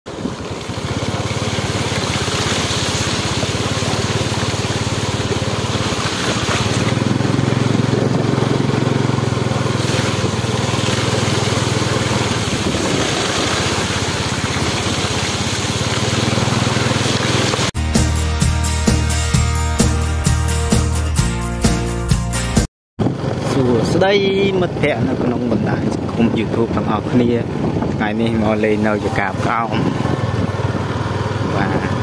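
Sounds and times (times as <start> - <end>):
small motorbike engine running: 0.1 - 17.7, 23.0 - 24.2, 29.3 - 32.0
tyres swishing through water: 0.1 - 17.8
wind on microphone: 9.9 - 13.8, 23.0 - 32.0.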